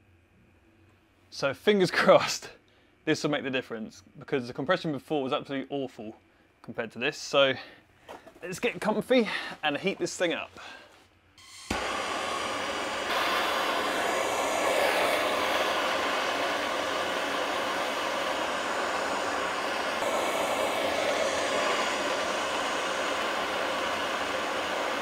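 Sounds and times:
heater rushing roar: 11.4 - 25.0.

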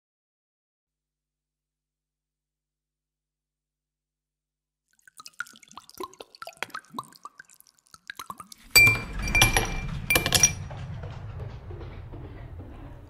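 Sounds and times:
ice clinking against glass: 8.1 - 10.6
ice tinkling in glass: 8.6 - 10.6
low rumble: 8.6 - 13.0.

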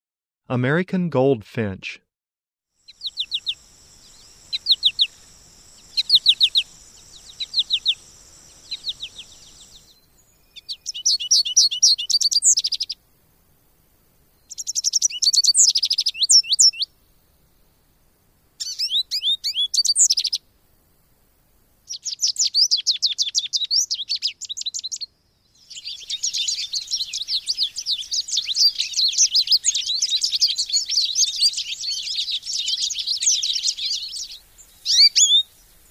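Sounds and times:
bird twittering and chirping: 2.9 - 13.0, 14.4 - 16.9, 18.6 - 20.4, 25.6 - 35.9.

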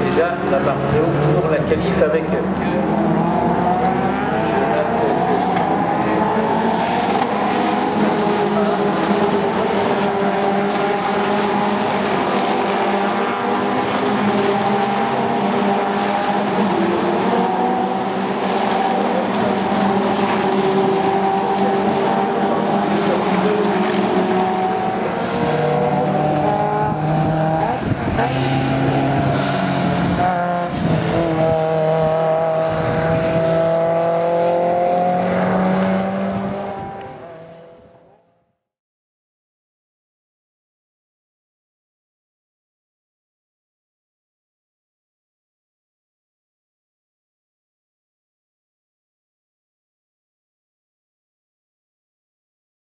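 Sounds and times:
race car engines running hard: 0.0 - 38.1.

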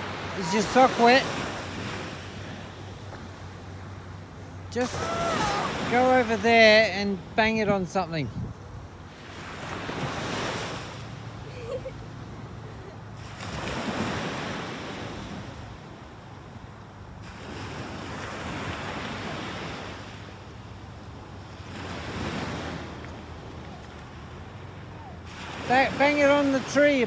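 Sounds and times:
ocean surf breaking: 0.0 - 8.2, 9.0 - 16.6, 17.2 - 27.0
wind on microphone: 7.7 - 9.0.

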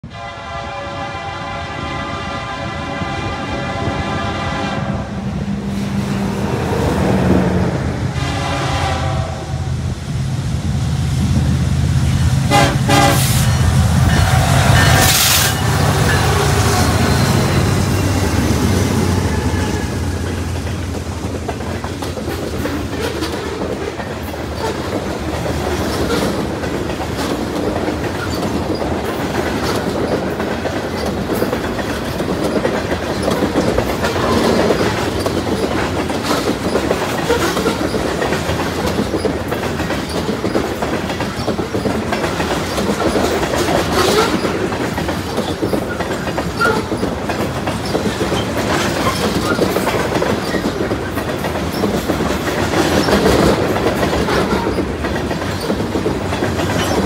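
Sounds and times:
freight train wheels rumbling: 0.0 - 57.0
wheels clickety-clack on rail joints: 12.0 - 57.0.

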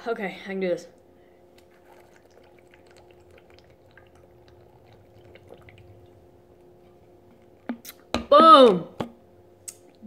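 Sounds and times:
faint steady hum: 0.0 - 10.0
gulping liquid: 1.6 - 8.0.

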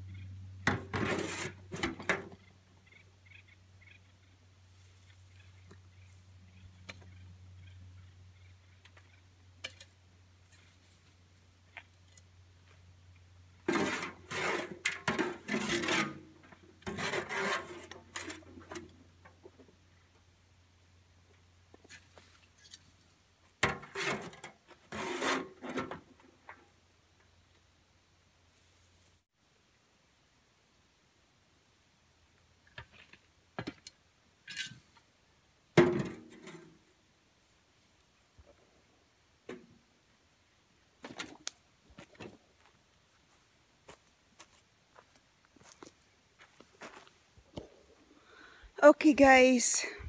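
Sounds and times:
wheelbarrow clatter: 0.6 - 2.4, 13.6 - 19.0, 23.6 - 26.2
rough scraping and rubbing: 0.7 - 2.3, 13.6 - 18.8, 23.6 - 26.0.

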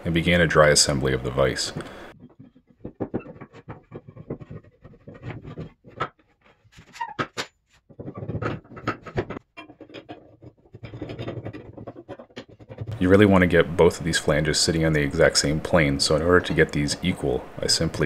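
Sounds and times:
metal pipe scraping against wood: 1.8 - 13.6
knocks and clicks: 7.0 - 13.1.

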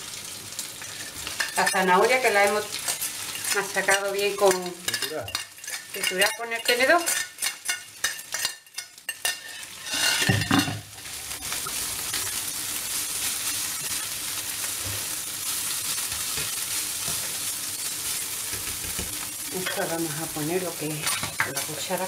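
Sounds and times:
vegetables sizzling in oil: 0.0 - 22.0
whisk stirring in pan: 0.8 - 15.2, 20.8 - 22.0
scraping and clinking on plate: 2.8 - 10.9.

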